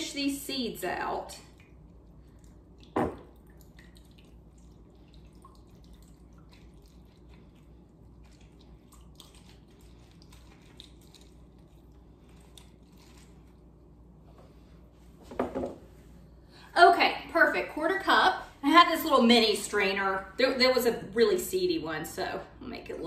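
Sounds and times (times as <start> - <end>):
low steady hum: 0.0 - 23.0
wet squishing and dripping: 1.4 - 13.9.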